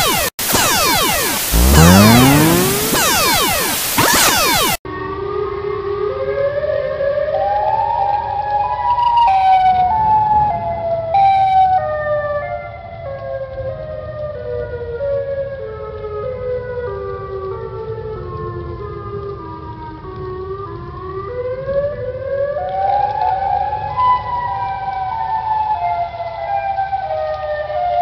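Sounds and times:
warning siren chord: 0.0s - 4.8s.

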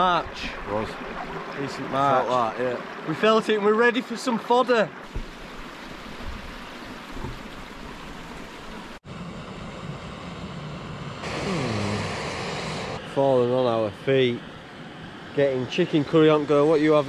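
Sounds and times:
rushing wind: 5.1s - 17.0s
gas stove hissing: 11.2s - 13.0s.

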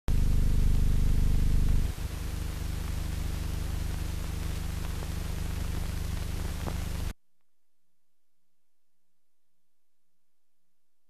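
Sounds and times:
low electrical hum: 0.1s - 7.1s
steady hiss: 0.1s - 7.1s.

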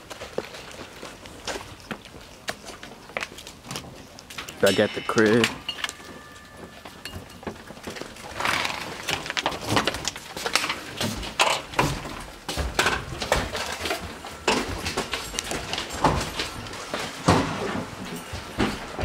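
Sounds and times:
footsteps: 0.0s - 19.0s.

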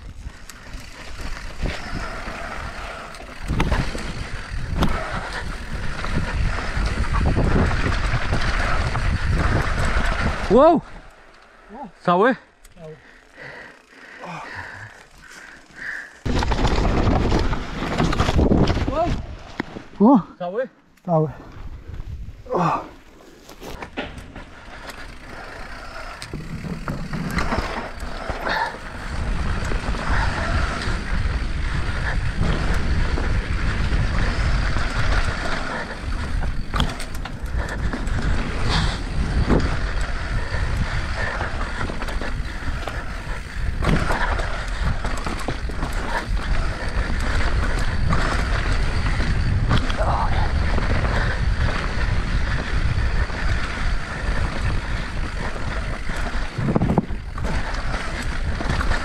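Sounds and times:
bike tyres rolling rumble: 0.0s - 20.1s, 21.2s - 59.0s
bike knocks and rattles: 3.2s - 10.4s, 16.2s - 19.8s, 26.2s - 53.2s, 54.1s - 59.0s.

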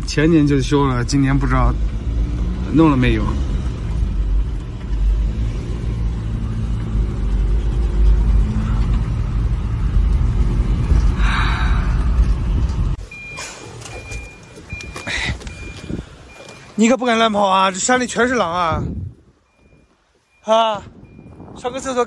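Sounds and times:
car engine and road noise: 0.0s - 22.0s
car warning chime beeping: 13.0s - 18.5s, 19.4s - 22.0s.

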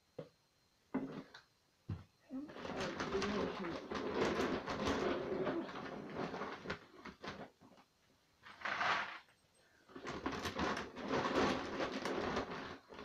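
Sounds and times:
dog feed sack rustling: 2.5s - 7.5s, 9.9s - 13.0s.

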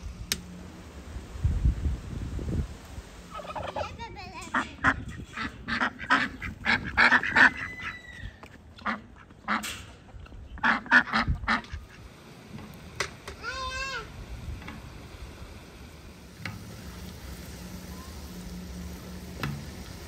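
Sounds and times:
ducks quacking: 3.3s - 8.0s, 8.7s - 12.1s.

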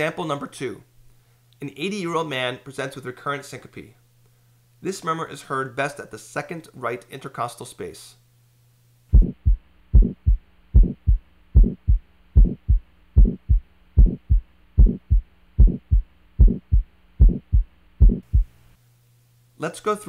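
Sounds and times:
harsh heart murmur: 9.1s - 18.6s
heartbeat thumps: 9.1s - 18.6s.

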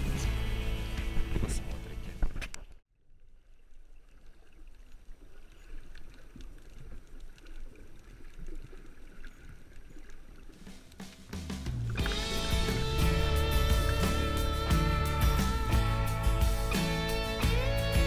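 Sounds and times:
faint clicks and crackles: 1.4s - 11.3s.

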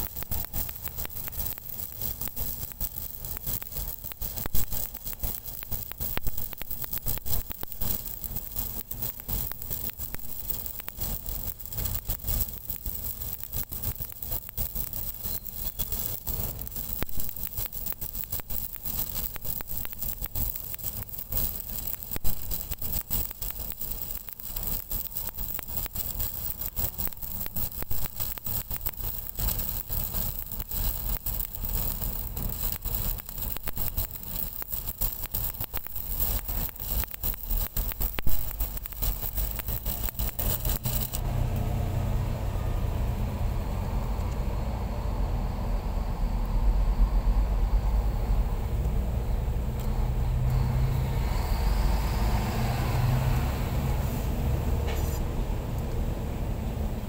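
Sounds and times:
welding arc crackling: 0.0s - 57.0s
low rumble: 37.9s - 52.6s.

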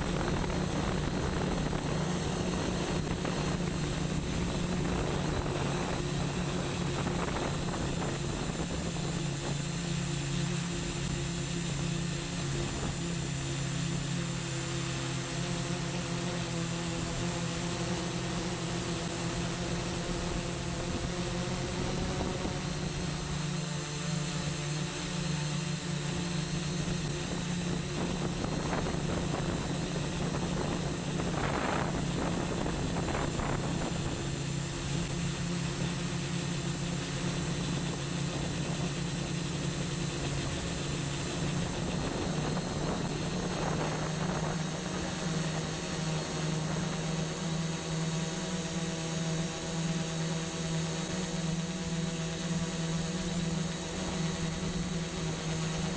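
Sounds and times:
wind gusts: 0.0s - 13.5s, 26.2s - 47.4s
drone motors humming and whining: 0.0s - 55.9s.

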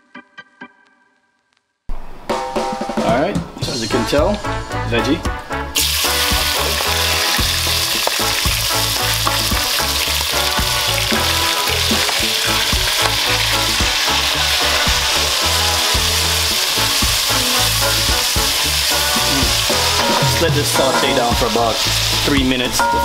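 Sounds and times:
vegetables sizzling in a pot: 5.8s - 23.0s.

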